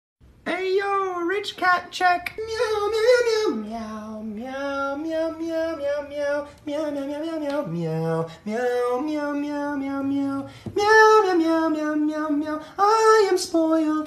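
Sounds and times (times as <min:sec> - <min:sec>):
person singing slow melody: 0:00.5 - 0:14.0.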